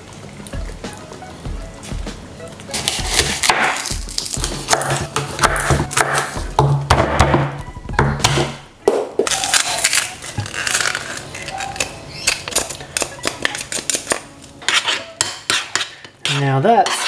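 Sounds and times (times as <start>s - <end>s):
utensils clinking against dishes: 9.3s - 17.0s
utensils scraping a bowl: 9.3s - 17.0s.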